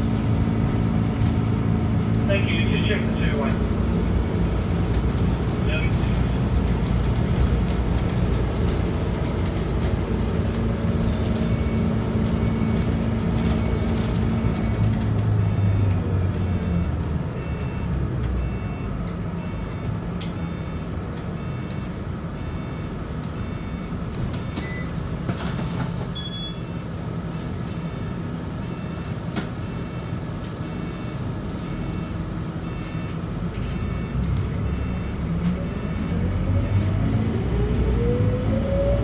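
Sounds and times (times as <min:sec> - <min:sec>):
bus diesel engine running: 0:00.0 - 0:39.0
electronic beep: 0:11.4 - 0:11.8.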